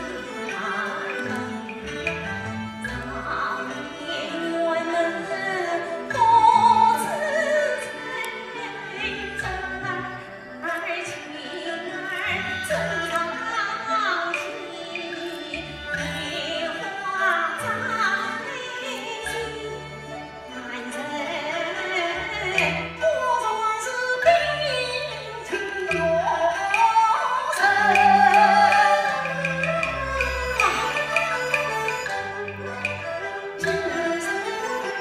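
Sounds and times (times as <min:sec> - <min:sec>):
woman singing opera: 0:00.0 - 0:01.6, 0:02.8 - 0:32.2
opera instrumental accompaniment: 0:00.0 - 0:35.0
sharp percussion clicks: 0:00.1 - 0:03.9, 0:25.4 - 0:35.0.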